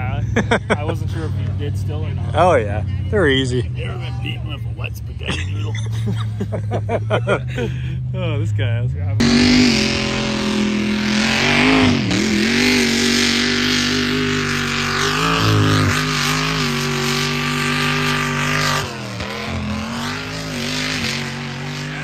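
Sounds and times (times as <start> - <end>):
truck engine at high revs: 0.0 - 22.0.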